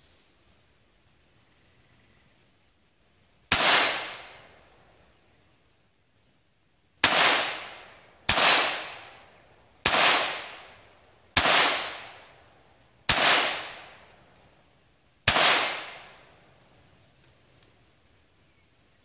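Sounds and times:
pistol shots with echo: 3.5 - 4.6, 7.0 - 10.8, 11.4 - 12.3, 13.1 - 14.0, 15.3 - 16.2.

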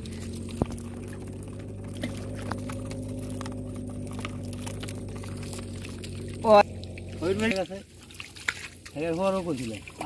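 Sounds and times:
small engine humming: 0.0 - 8.0.

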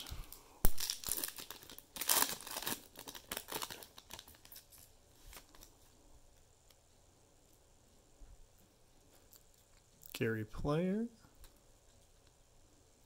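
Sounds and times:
wrapper tearing and crinkling: 0.0 - 5.7.

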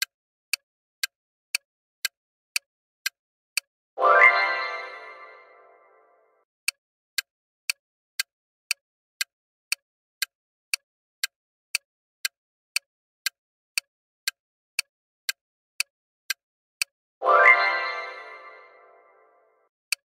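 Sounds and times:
countdown timer ticking: 4.0 - 6.2, 17.2 - 20.0.

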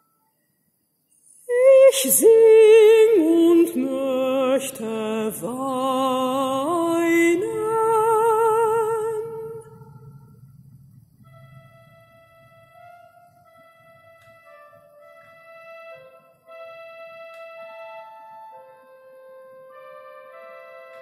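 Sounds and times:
mezzo-soprano singing with vibrato: 1.4 - 10.3.

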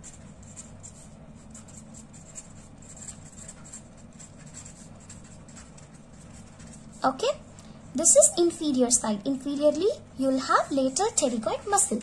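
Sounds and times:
pen scratching on paper: 0.0 - 7.2
low steady hum: 0.0 - 12.0.

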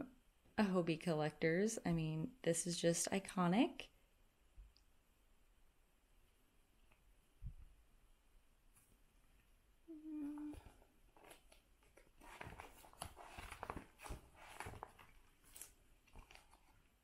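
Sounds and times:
person humming: 9.9 - 10.8
plastic sleeves rustling and clicking: 10.4 - 17.0.

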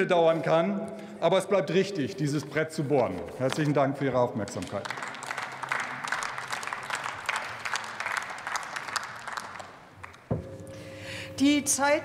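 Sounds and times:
crowd applauding: 4.4 - 10.3.

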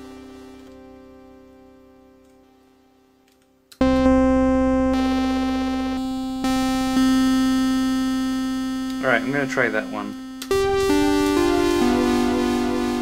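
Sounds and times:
synthesizer bell-like notes: 3.8 - 13.0.

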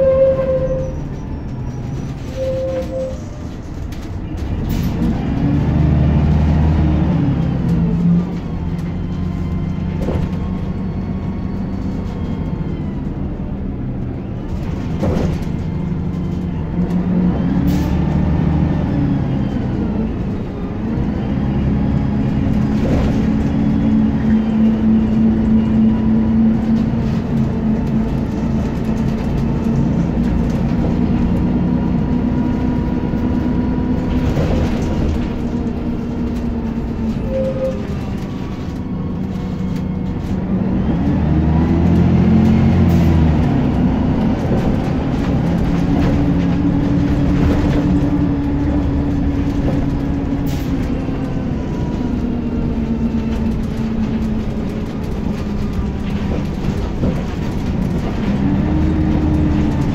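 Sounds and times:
bus diesel engine: 0.0 - 59.9
knocks from bus body: 14.7 - 15.7.

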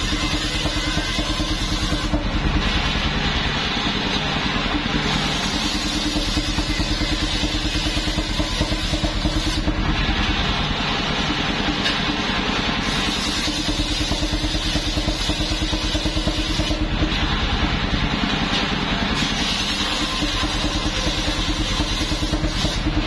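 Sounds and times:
sawmill engine running: 0.0 - 23.0
circular saw hissing through wood: 5.0 - 9.7, 12.8 - 16.8, 19.2 - 23.0.

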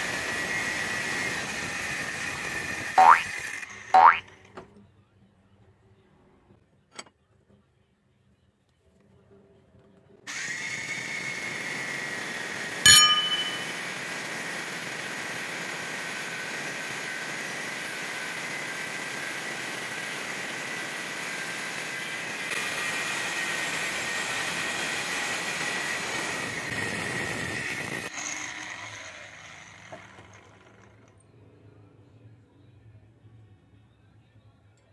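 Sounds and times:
angle grinder cutting steel: 0.0 - 4.1, 10.3 - 31.0
sharp metallic clank: 12.9 - 13.8.

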